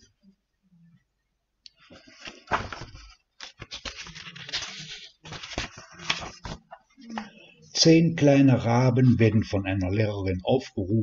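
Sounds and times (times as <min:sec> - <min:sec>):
book pages rustling and turning: 0:01.7 - 0:07.4.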